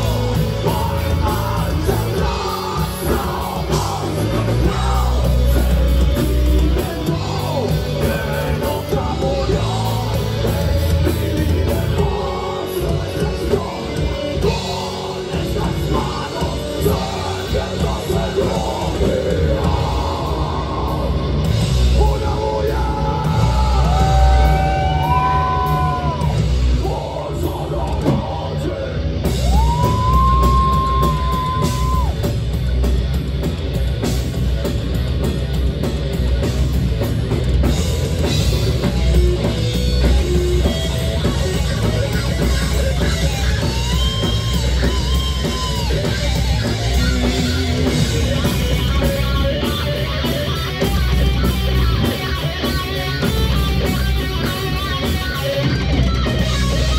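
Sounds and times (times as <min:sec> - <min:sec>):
yelled vocals: 0:00.0 - 0:32.6
heavy metal band playing: 0:00.0 - 0:56.9.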